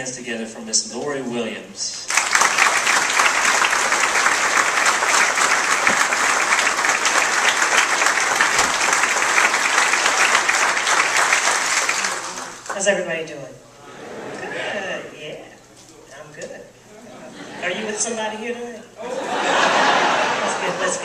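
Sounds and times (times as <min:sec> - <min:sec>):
audience applauding: 0:02.1 - 0:12.8.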